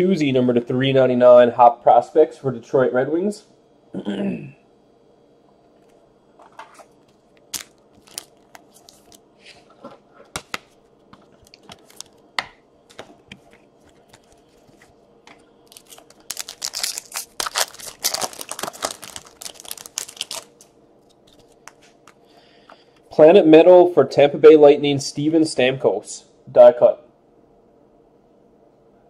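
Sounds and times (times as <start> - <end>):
cards clicking and rustling: 6.5 - 9.2, 10.4 - 12.2, 12.9 - 22.2
wrapper tearing and crumpling: 7.5 - 9.2, 15.6 - 20.7.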